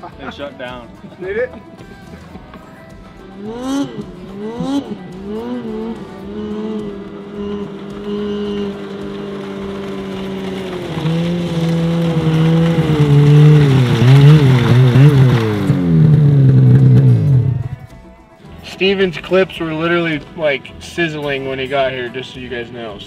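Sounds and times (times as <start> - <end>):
snowmobile engine running: 3.2 - 17.9.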